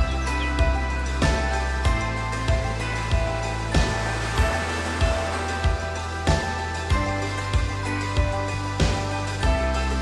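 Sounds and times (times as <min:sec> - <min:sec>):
background music with beat: 0:00.0 - 0:10.0.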